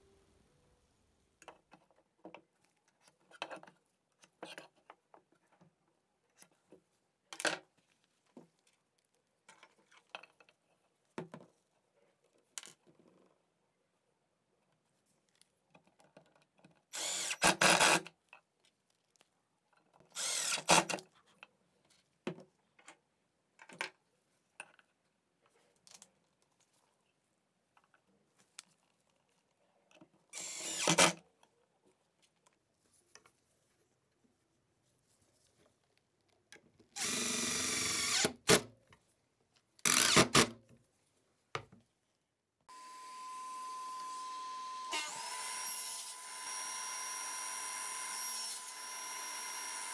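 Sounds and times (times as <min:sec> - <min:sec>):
cordless driver driving screws: 0:16.9 - 0:18.0, 0:20.2 - 0:21.0, 0:30.4 - 0:31.2, 0:37.0 - 0:38.6, 0:39.8 - 0:40.5, 0:44.9 - 0:49.9.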